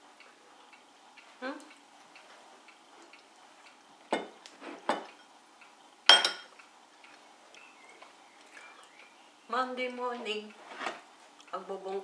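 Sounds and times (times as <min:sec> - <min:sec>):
spoon clinking ceramic bowl: 0:06.1 - 0:06.5.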